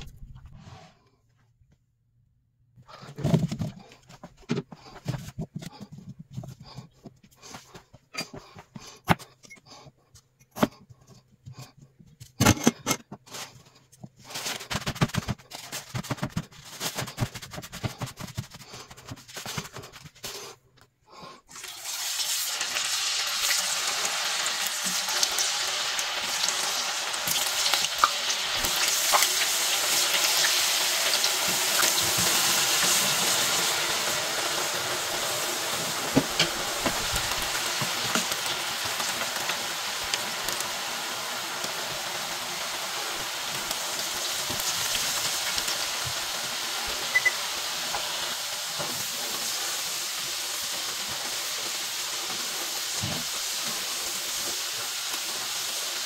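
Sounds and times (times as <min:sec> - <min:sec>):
paper towel rustling: 0:13.3 - 0:20.5, 0:35.7 - 0:39.4
chips knocking on paper towels: 0:14.3 - 0:20.5
chips sizzling in hot oil: 0:21.5 - 0:56.0.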